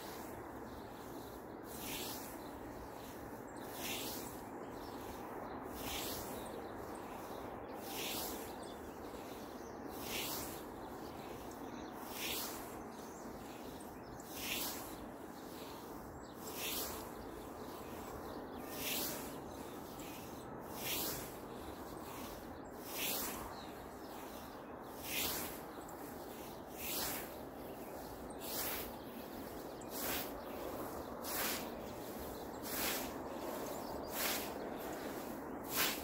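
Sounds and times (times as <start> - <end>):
steady background noise: 0.0 - 36.0
scythe swishing through grass: 16.4 - 17.0, 18.7 - 19.3, 20.0 - 21.4, 22.1 - 23.4, 25.0 - 27.8, 28.4 - 28.9, 29.9 - 30.6, 31.2 - 36.0.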